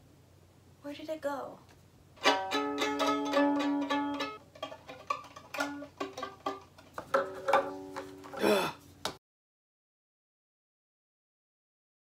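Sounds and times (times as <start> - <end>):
violin strings plucked: 2.2 - 8.4.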